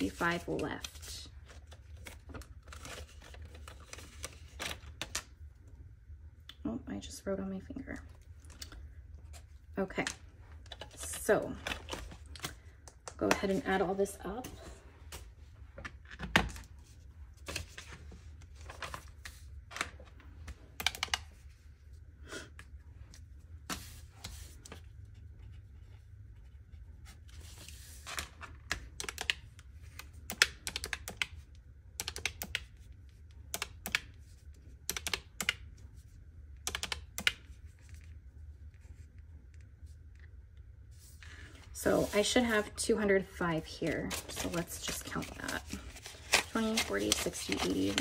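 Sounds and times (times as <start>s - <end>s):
calculator keys clicking: 34.9s - 35.6s.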